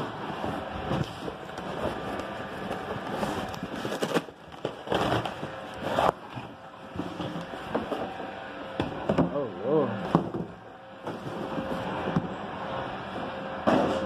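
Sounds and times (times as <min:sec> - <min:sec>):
cardboard rustling and scraping: 0:00.0 - 0:08.4, 0:10.1 - 0:12.4.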